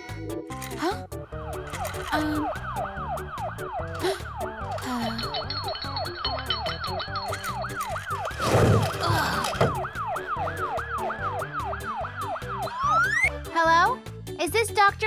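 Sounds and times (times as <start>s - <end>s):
cartoon siren wailing: 1.3s - 5.4s, 7.4s - 13.3s.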